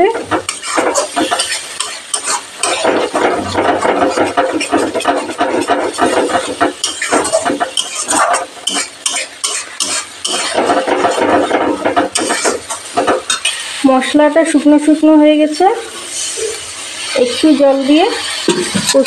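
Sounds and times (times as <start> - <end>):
spatula scraping metal pan: 0.0 - 13.7.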